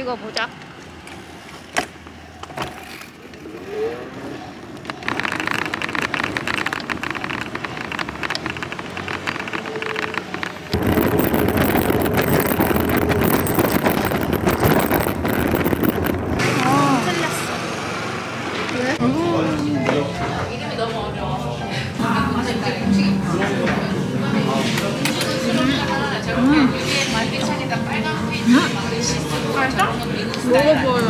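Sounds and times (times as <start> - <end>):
bicycle frame rattling: 4.7 - 16.8
wind on microphone: 10.6 - 16.8.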